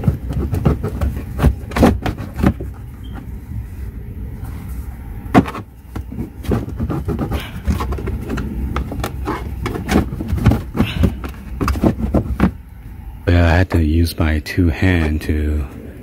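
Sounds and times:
cooling fan hum: 0.0s - 16.0s.

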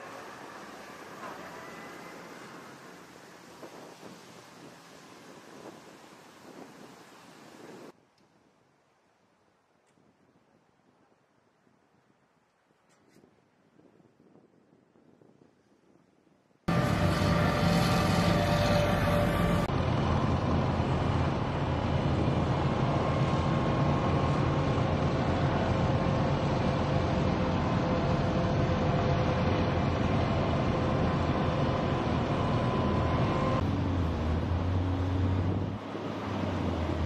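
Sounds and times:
diesel vehicles driving: 16.7s - 37.0s.

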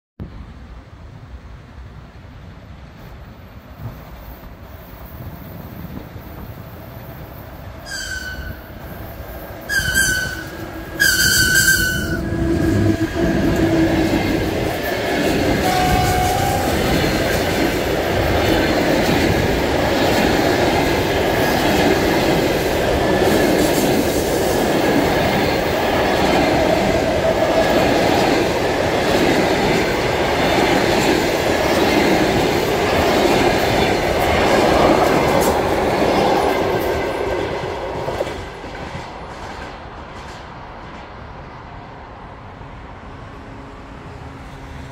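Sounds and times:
train wheels rumbling on rails: 0.3s - 44.9s
high-pitched locomotive horn blasts: 7.8s - 8.7s, 9.7s - 13.9s, 15.6s - 17.2s.

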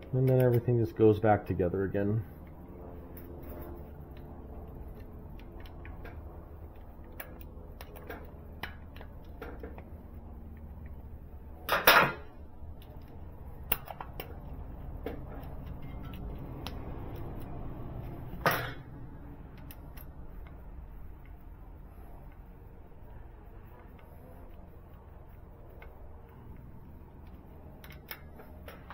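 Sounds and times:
low steady hum: 0.0s - 28.9s
metal clicks and clinks: 12.8s - 17.6s, 19.5s - 20.6s, 27.2s - 28.9s.

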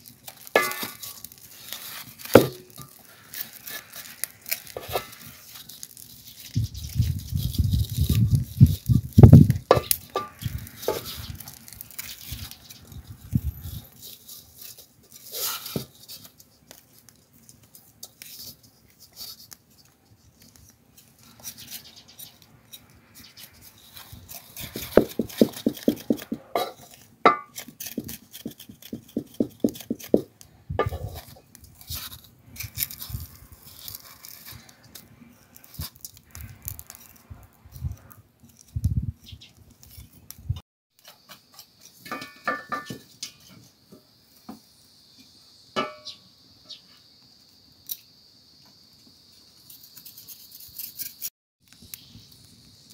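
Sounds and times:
knife scraping skin: 0.5s - 16.3s, 21.0s - 37.2s, 49.7s - 51.3s
insects chirping: 41.0s - 52.9s.

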